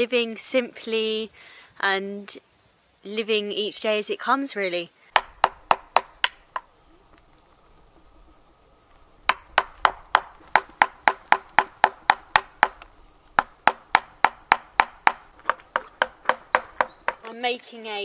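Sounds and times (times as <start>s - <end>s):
chisel hammered into wood: 5.2s - 6.4s, 13.4s - 17.2s.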